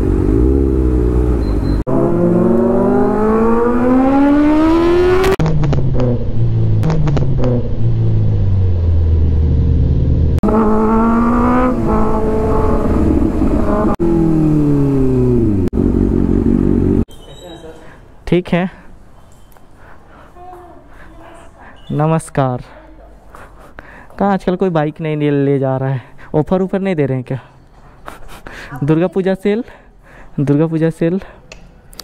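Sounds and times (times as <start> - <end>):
motorcycle engine accelerating: 0.0 - 17.1.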